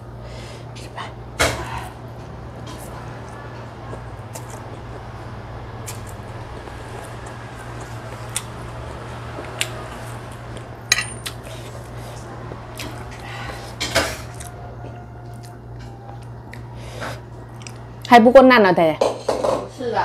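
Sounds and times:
steady low hum: 0.0s - 19.4s
cutlery clinking against dishes: 10.9s - 11.4s.

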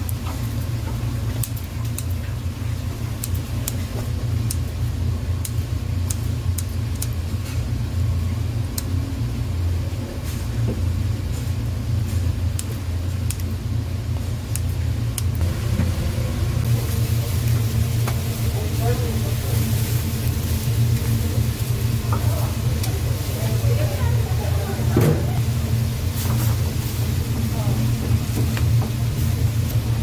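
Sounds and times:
machinery humming: 7.7s - 30.0s.

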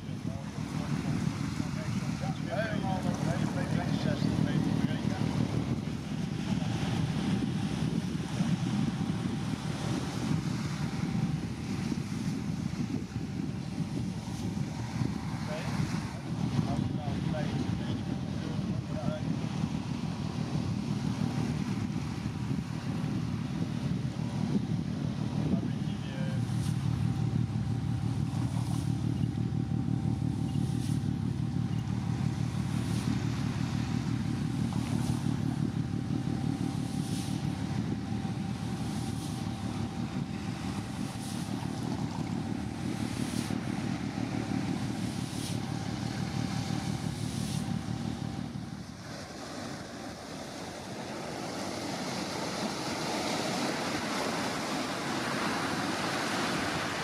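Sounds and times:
low engine rumble: 0.0s - 57.0s
waves washing onto rocky shore: 0.0s - 57.0s
thin even whine: 20.7s - 49.9s.

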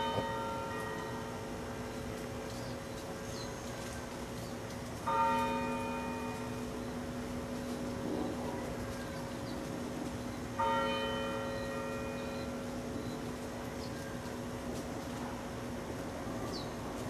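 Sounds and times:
church bell tolling: 0.0s - 1.7s, 5.0s - 8.5s, 10.6s - 13.0s.

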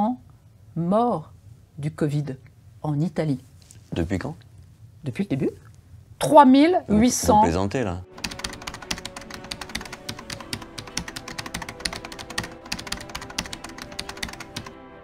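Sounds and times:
soft background music: 6.2s - 15.0s
rapid keyboard typing clicks: 8.1s - 14.7s.

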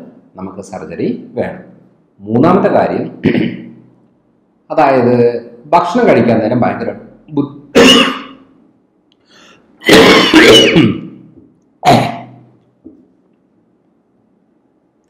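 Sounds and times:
man clearing throat and coughing: 3.2s - 3.8s, 7.7s - 8.5s, 9.8s - 12.5s.

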